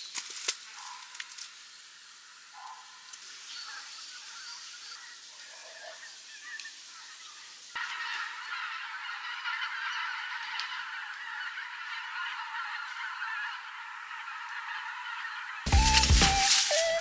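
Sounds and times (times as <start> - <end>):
geese honking: 1.9 - 17.0.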